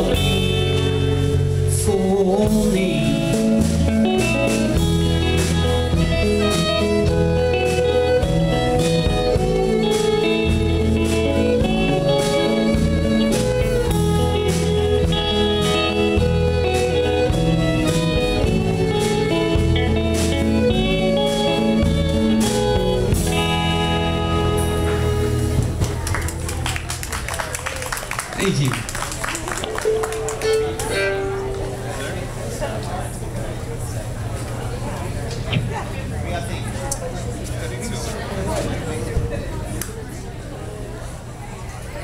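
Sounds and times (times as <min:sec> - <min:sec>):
plucked upright bass: 0:00.0 - 0:26.8, 0:29.9 - 0:32.8
drum kit: 0:00.0 - 0:27.0
electric guitar: 0:00.0 - 0:33.3
fiddle: 0:03.4 - 0:26.1, 0:29.8 - 0:32.3.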